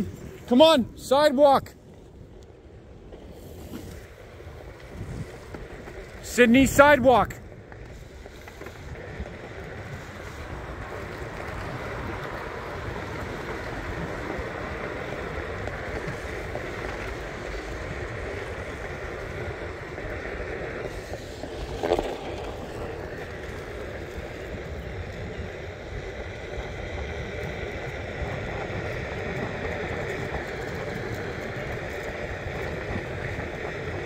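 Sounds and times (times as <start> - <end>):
skateboard wheels rolling on concrete: 0.0 - 34.0
wind on microphone: 1.8 - 34.0.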